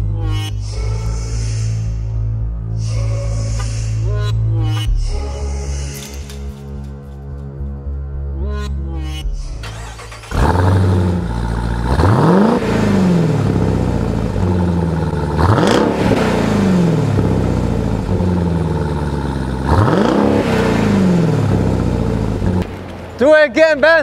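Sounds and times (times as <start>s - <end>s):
background music: 0.0s - 24.0s
car engine revving: 9.6s - 24.0s.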